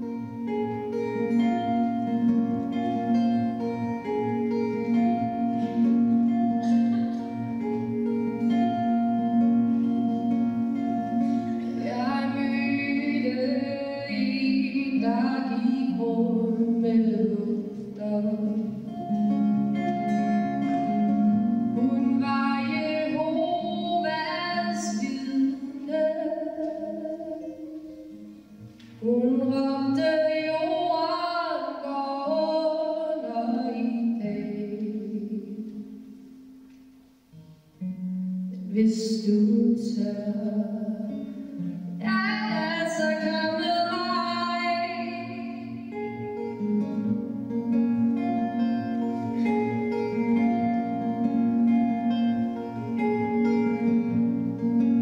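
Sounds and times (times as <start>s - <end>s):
acoustic guitar strumming: 0.0s - 55.0s
woman singing: 10.7s - 28.1s, 29.0s - 36.0s, 38.6s - 47.0s.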